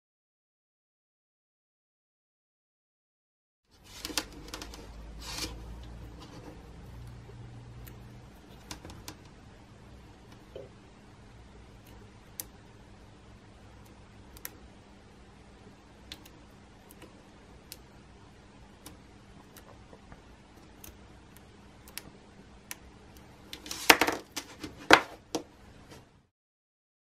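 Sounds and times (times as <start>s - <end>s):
probe tips clicking on terminals: 11.8s - 12.6s, 13.7s - 14.7s, 16.0s - 18.0s, 18.7s - 23.6s.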